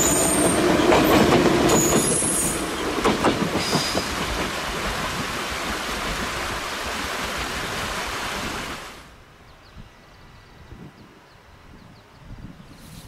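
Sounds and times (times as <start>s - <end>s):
train wheel clacks: 0.0s - 5.0s
train rolling noise: 0.0s - 8.1s
high wheel squeal: 1.8s - 2.8s.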